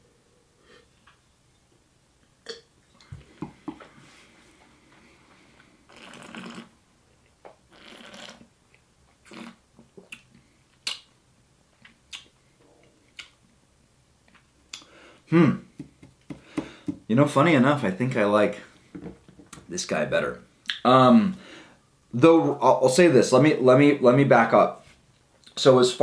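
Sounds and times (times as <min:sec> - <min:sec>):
soft lip smacks and clicks: 0:07.4 - 0:11.2, 0:11.8 - 0:13.4, 0:14.2 - 0:14.9, 0:20.6 - 0:20.8.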